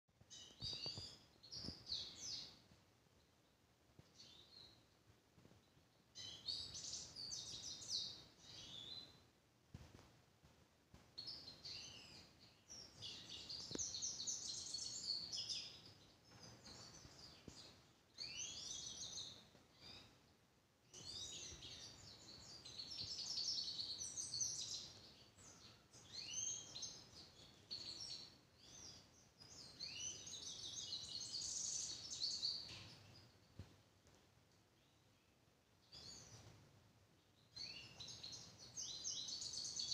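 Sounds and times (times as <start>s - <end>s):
finch singing: 0.3s - 2.6s, 6.2s - 9.2s, 11.2s - 20.2s, 20.9s - 33.4s, 37.4s - 39.9s.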